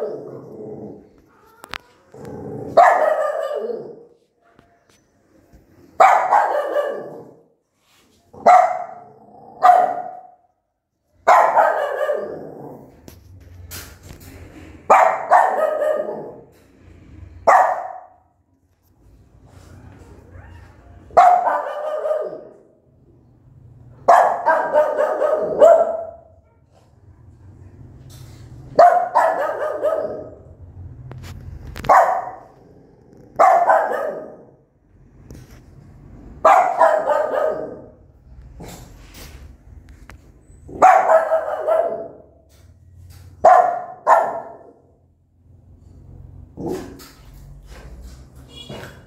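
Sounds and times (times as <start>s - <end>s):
dog barking: 2.7s - 4.1s, 6.0s - 7.4s, 8.4s - 10.5s, 11.2s - 12.4s, 14.9s - 16.5s, 17.4s - 18.3s, 21.1s - 22.7s, 24.0s - 27.3s, 28.8s - 30.5s, 31.8s - 32.6s, 33.4s - 34.6s, 36.4s - 38.0s, 40.7s - 42.4s, 43.4s - 45.0s.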